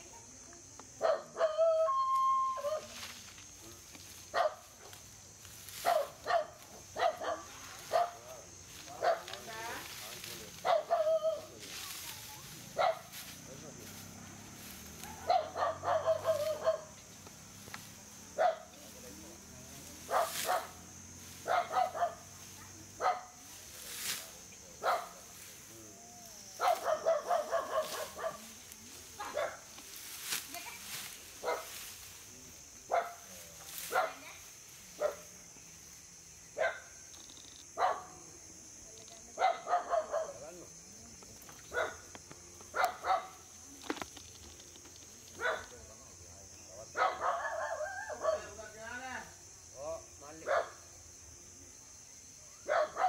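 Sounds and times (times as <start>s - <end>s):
dog barking: 1.0s - 1.6s, 4.3s - 4.9s, 5.8s - 8.2s, 9.0s - 9.4s, 10.6s - 11.4s, 12.8s - 13.1s, 15.0s - 16.9s, 18.4s - 18.8s, 20.1s - 20.8s, 21.4s - 22.2s, 23.0s - 23.4s, 24.8s - 25.2s, 26.6s - 28.4s, 31.4s - 31.7s, 32.9s - 33.2s, 33.9s - 34.2s, 35.0s - 35.3s, 36.6s - 36.9s, 37.8s - 38.1s, 39.4s - 40.5s, 41.7s - 42.0s, 42.7s - 43.4s, 45.4s - 45.7s, 47.0s - 48.5s, 50.4s - 50.8s, 52.7s - 53.0s.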